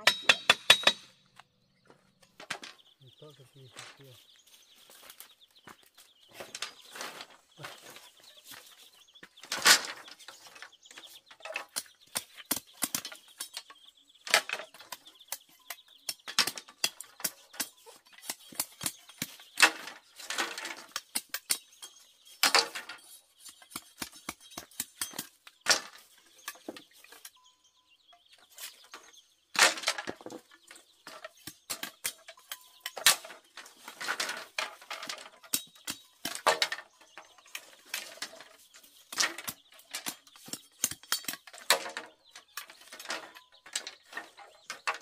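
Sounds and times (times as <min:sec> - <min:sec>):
bamboo strips rustling and clattering: 0:01.8 - 0:27.4, 0:28.3 - 0:45.0
machete chopping bamboo: 0:11.5 - 0:13.6, 0:16.1 - 0:19.9, 0:23.4 - 0:25.4, 0:39.2 - 0:41.9.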